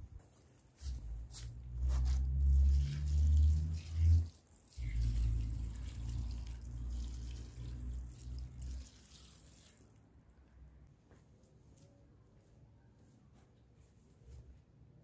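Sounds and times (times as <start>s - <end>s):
water pouring into metal pot: 2.4s - 10.0s.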